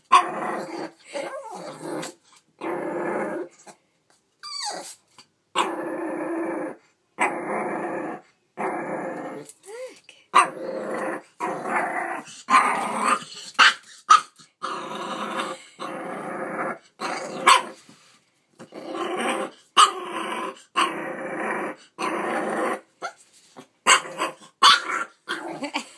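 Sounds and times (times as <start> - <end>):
puppy growling: 0.0 - 3.8, 5.6 - 13.8, 14.5 - 17.8, 18.6 - 22.9, 23.6 - 25.9
puppy barking: 17.4 - 17.7, 23.9 - 25.1.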